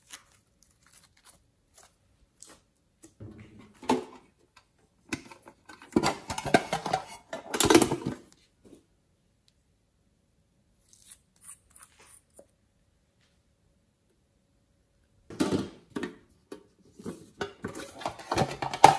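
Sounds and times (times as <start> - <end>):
tin box clattering and rustling: 5.2 - 8.2, 17.1 - 18.9.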